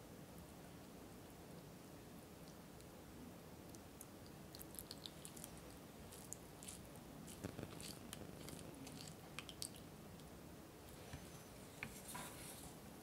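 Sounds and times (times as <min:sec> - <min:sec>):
faint wet squishing: 0:03.6 - 0:12.8.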